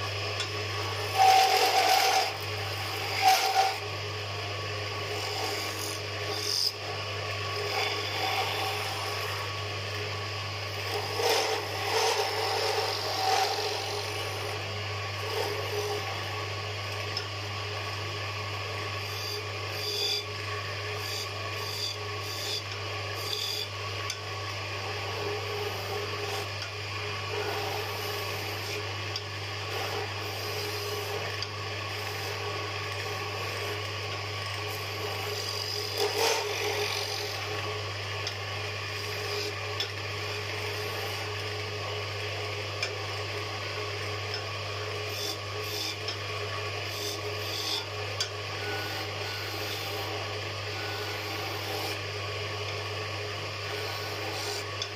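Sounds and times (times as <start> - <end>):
lathe motor hum: 0.0 - 54.9
cutting tool scraping wood: 1.0 - 3.8, 10.7 - 14.6, 35.1 - 37.5.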